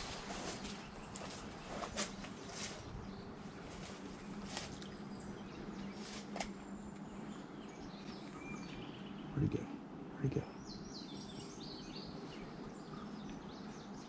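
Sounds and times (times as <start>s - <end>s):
faint bird calls: 7.0s - 14.0s.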